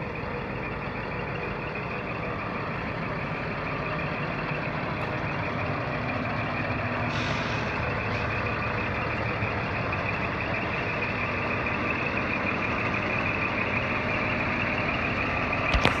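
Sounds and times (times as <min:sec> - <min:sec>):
truck diesel engine idling: 0:00.0 - 0:16.0
short hiss of air: 0:07.1 - 0:07.8.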